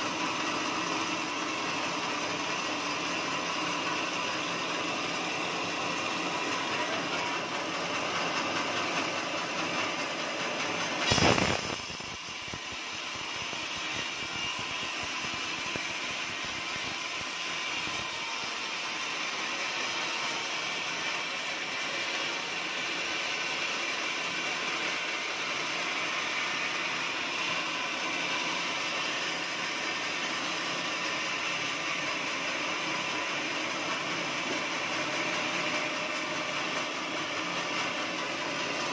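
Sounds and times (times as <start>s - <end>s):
band saw cutting log: 0.0s - 38.9s
loud burst of noise: 10.9s - 18.2s.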